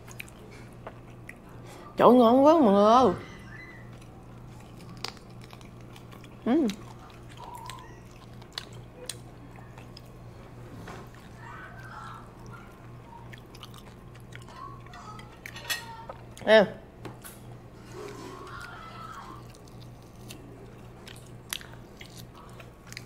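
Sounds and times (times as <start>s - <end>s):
people chewing: 0.0s - 2.0s, 3.2s - 16.4s, 17.8s - 23.0s
faint voices: 11.1s - 13.4s
cutlery and dishes clicking: 15.5s - 15.9s.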